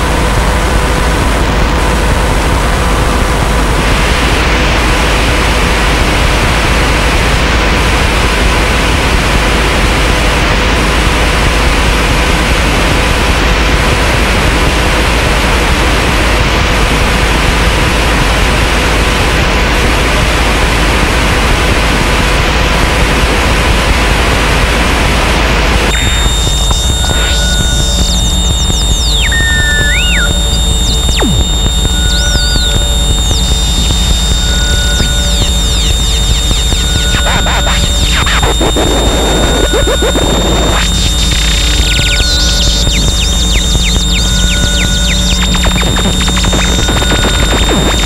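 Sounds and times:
high steady tones: 25.9s - 48.0s.

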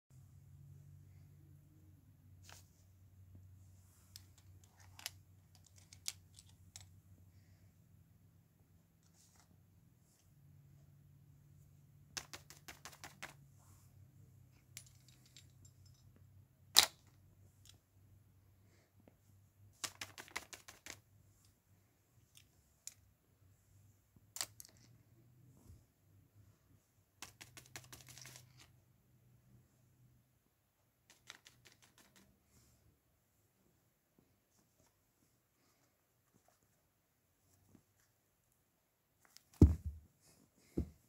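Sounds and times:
faint low hum: 0.2s - 12.2s
small toys clicking and tapping: 4.2s - 6.9s, 12.2s - 13.4s, 19.8s - 21.0s, 27.2s - 28.7s, 31.1s - 32.3s.

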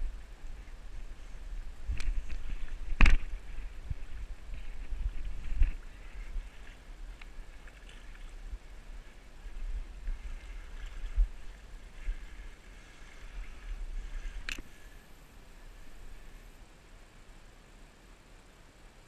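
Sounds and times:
wind rumbling on microphone: 0.0s - 17.9s
river water gurgling and splashing: 0.0s - 18.8s.

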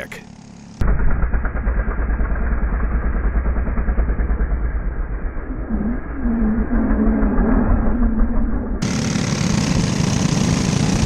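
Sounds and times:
wind rush: 5.4s - 8.8s
kart engine revving: 8.8s - 11.0s.

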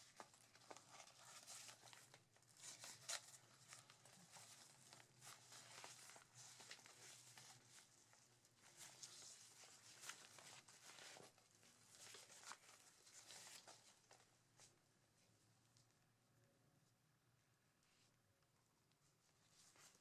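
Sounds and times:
fabric rustling and scraping: 0.0s - 14.8s, 19.1s - 20.0s.

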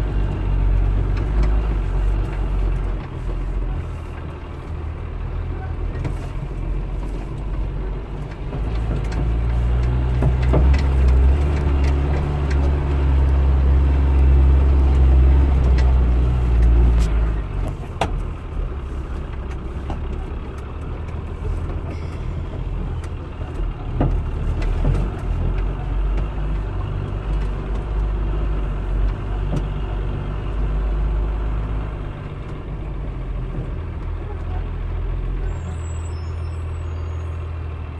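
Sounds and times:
truck engine running: 0.0s - 37.9s
cab knocks and rattles: 5.7s - 18.6s, 19.2s - 30.6s.

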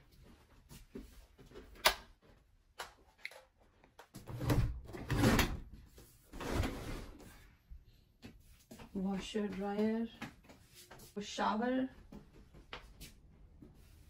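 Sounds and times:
closet door scraping open: 4.2s - 5.7s, 6.3s - 7.2s.

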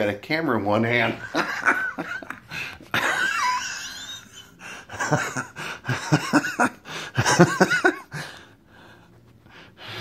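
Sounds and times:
man laughing: 1.0s - 8.4s.

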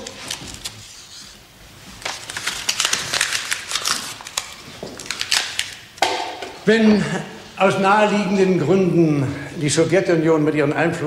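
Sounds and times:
paper crumpling: 0.0s - 5.9s.

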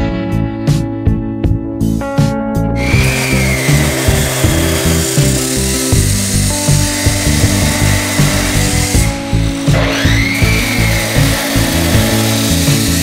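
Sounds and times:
guitar music: 0.0s - 13.0s
cut-off saw grinding steel: 2.8s - 13.0s.

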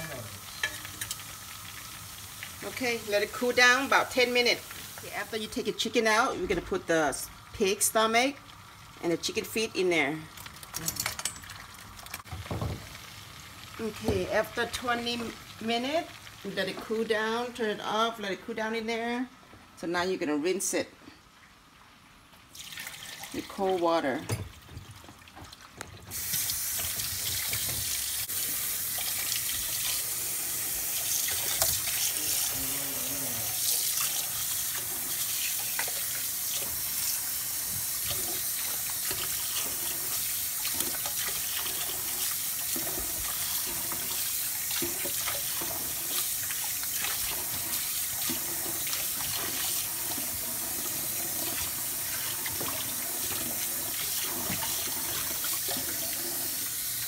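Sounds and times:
tap running water into sink: 24.3s - 32.1s, 33.6s - 57.0s.

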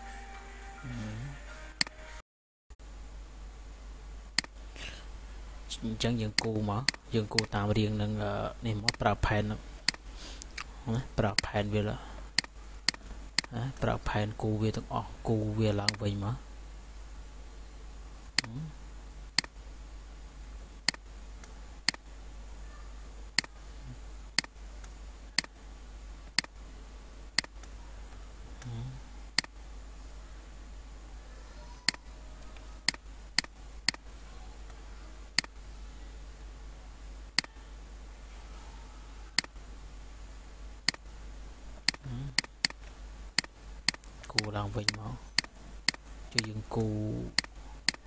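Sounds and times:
steady low hum: 0.0s - 2.2s, 2.8s - 48.0s
computer mouse clicking: 31.9s - 34.0s, 47.4s - 48.0s.

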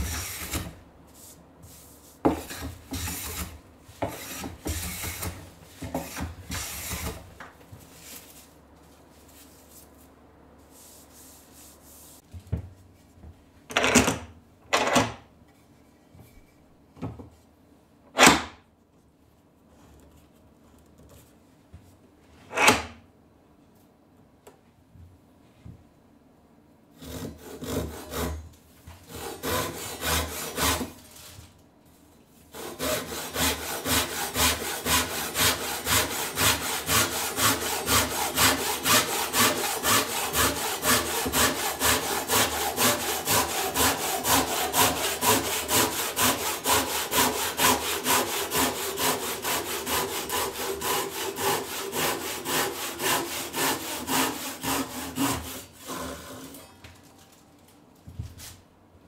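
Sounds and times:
handsaw cutting wood: 0.0s - 0.8s, 2.4s - 7.2s, 27.0s - 28.4s, 29.0s - 31.0s, 32.5s - 56.6s.

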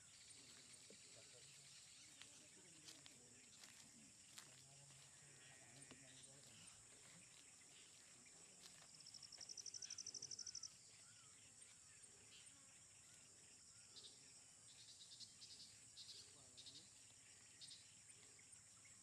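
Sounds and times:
insect chirping: 0.0s - 19.0s
insects droning: 0.0s - 19.0s
insect trilling: 9.1s - 11.4s.

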